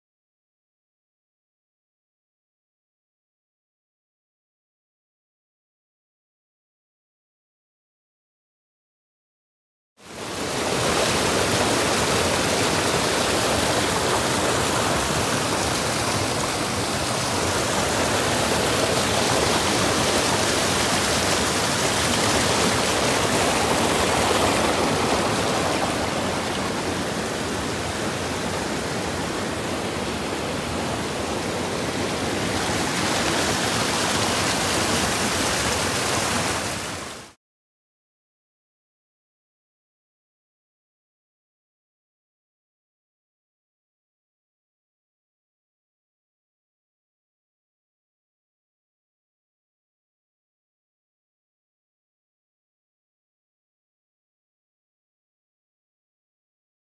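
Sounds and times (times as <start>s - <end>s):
rapids rushing over boulders: 10.1s - 37.4s.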